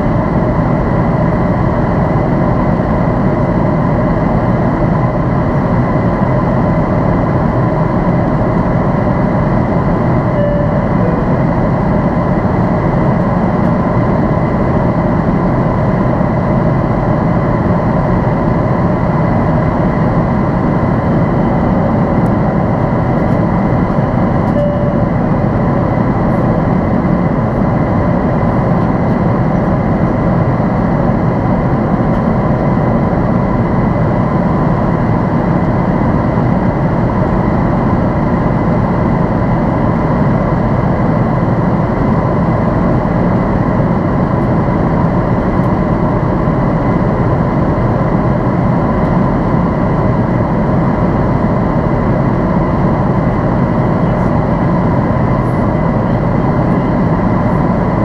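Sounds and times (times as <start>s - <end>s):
aircraft cabin engine drone: 0.0s - 58.0s
faint steady whine: 0.0s - 58.0s.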